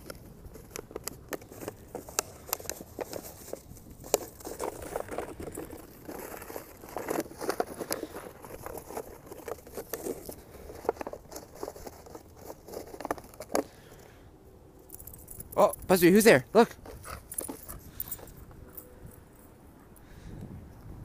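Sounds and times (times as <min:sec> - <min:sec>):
footsteps crunching in snow: 0:01.5 - 0:13.6.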